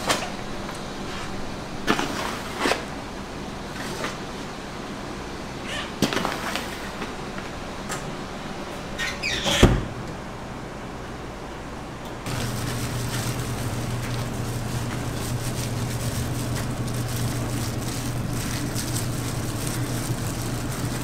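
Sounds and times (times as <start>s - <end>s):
steady hum: 9.8s - 21.0s.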